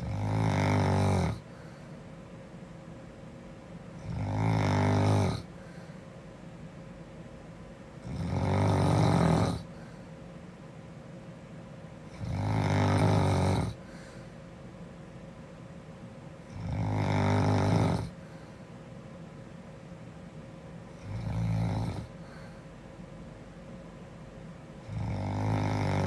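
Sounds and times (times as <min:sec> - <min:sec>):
girl snoring: 0:00.0 - 0:01.6, 0:04.0 - 0:05.6, 0:08.0 - 0:09.8, 0:12.1 - 0:14.0, 0:16.5 - 0:18.2, 0:21.0 - 0:22.5, 0:24.9 - 0:26.0.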